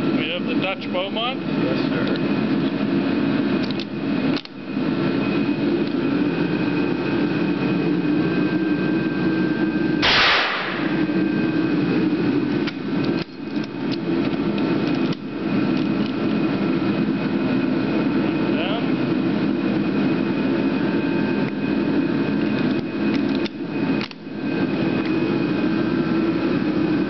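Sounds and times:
background hum: 0:00.0 - 0:27.0
rifle shot: 0:10.0 - 0:11.0.

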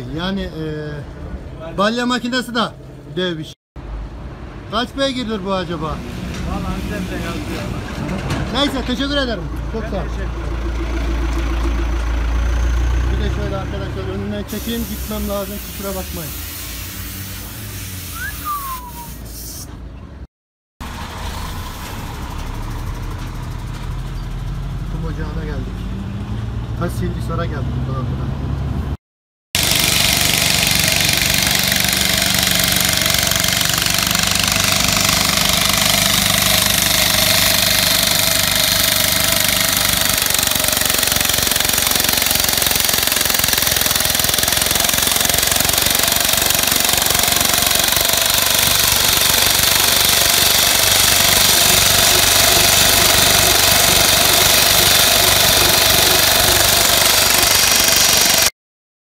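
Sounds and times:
road saw grinding pavement: 0:04.7 - 0:19.1, 0:29.6 - 0:58.5
small engine running: 0:29.6 - 0:58.5.

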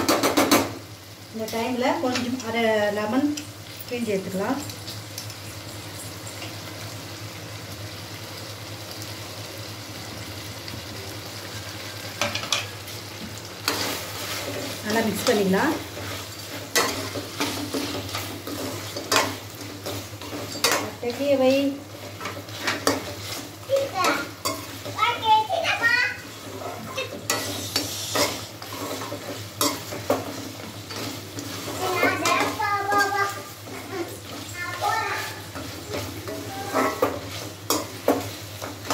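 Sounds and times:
meat sizzling in a pan: 0:00.0 - 0:38.9
ladle scraping a pan: 0:13.6 - 0:21.0, 0:26.3 - 0:34.5, 0:35.4 - 0:38.9.

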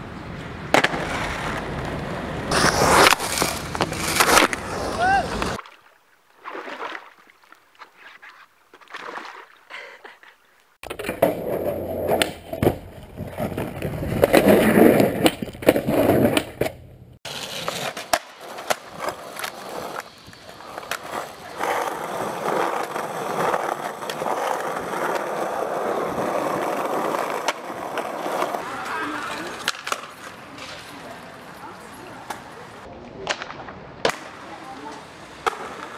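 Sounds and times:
skateboard wheels rolling on concrete: 0:00.0 - 0:05.9, 0:10.0 - 0:35.9
skateboard clacks and landings: 0:00.4 - 0:05.6, 0:10.8 - 0:31.1
skateboard splashing through water: 0:02.5 - 0:09.7.

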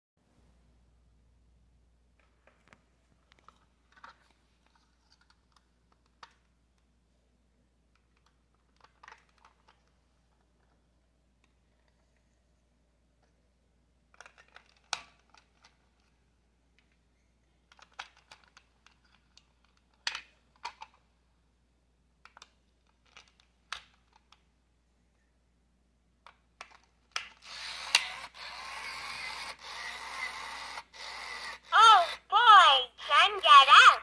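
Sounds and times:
toy motor whirring: 0:27.2 - 0:32.3.

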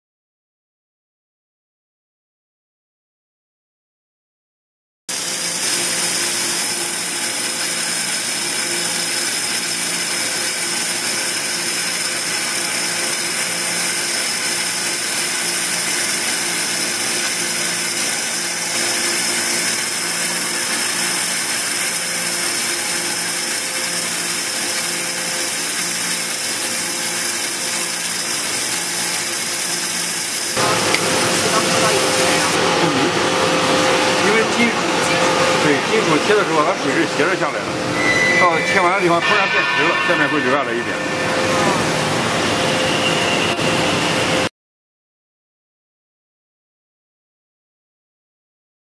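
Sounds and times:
high-pressure waterjet hiss: 0:05.1 - 0:35.8.

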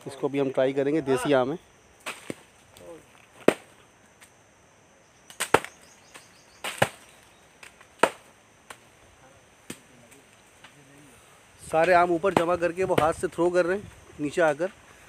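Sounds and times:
mangoes smacking into a sack: 0:02.0 - 0:03.8, 0:05.3 - 0:08.8.

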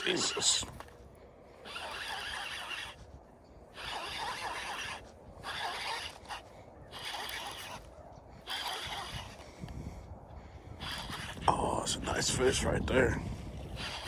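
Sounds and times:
fishing reel cranking: 0:00.0 - 0:01.0, 0:01.6 - 0:09.7, 0:10.8 - 0:12.3, 0:13.4 - 0:14.0.

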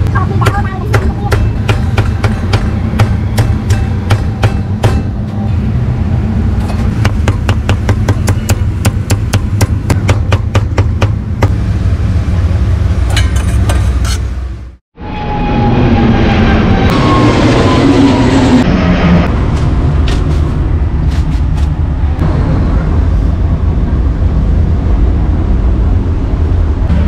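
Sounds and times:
steady low rumble: 0:15.6 - 0:27.0.

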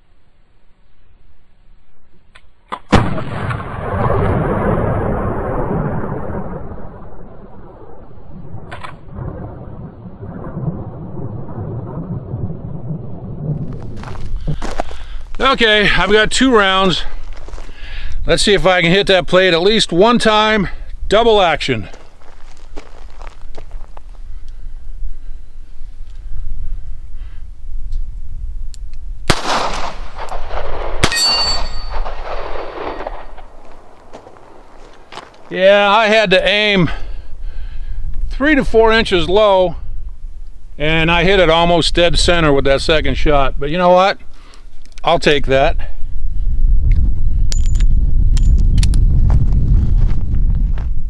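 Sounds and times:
wind buffeting microphone: 0:03.8 - 0:31.1, 0:45.3 - 0:51.0
revolver gunshots with echo: 0:29.3 - 0:34.7
steel plate ringing: 0:31.0 - 0:32.2.

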